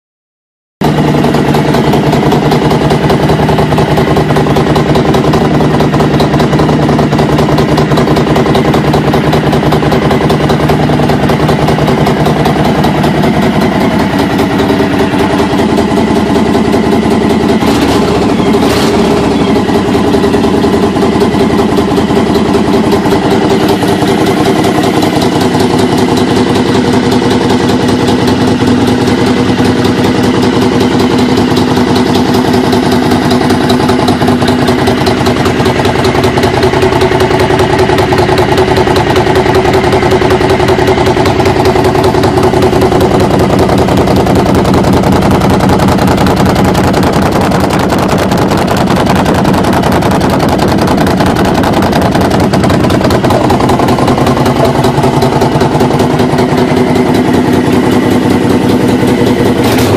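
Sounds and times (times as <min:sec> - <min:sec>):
motorcycle engine idling: 0:00.8 - 0:59.9.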